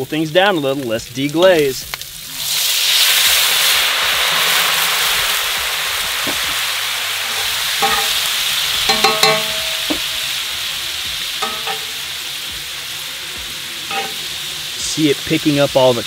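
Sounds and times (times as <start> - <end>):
wine sizzling and boiling in a pan: 0.0 - 16.0
metal tongs clinking against pan: 7.2 - 10.4, 11.4 - 12.2, 13.9 - 14.4.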